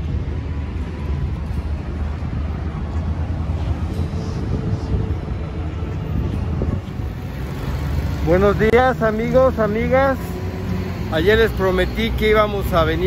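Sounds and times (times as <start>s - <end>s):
wind on microphone: 0.0s - 8.1s
traffic rumble: 0.0s - 13.0s.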